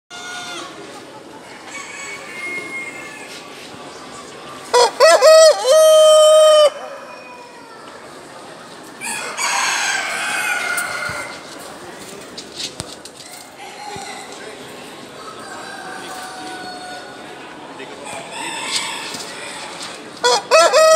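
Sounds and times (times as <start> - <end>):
rooster crowing: 4.8 - 7.8, 20.2 - 20.9.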